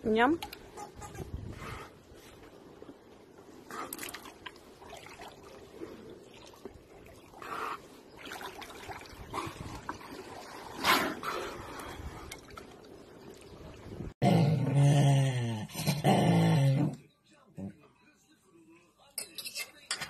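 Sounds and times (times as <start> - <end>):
water sloshing and lapping: 0.5 - 14.2.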